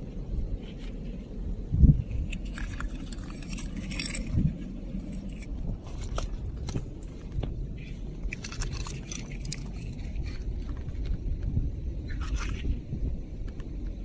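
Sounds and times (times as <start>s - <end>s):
wind on microphone: 0.0s - 14.0s
coral rubble and shell clicks: 2.0s - 11.5s.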